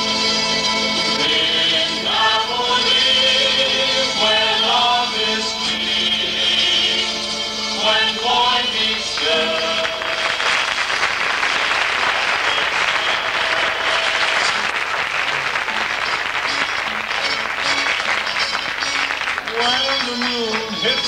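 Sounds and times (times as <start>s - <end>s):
audience applauding: 9.0s - 21.0s.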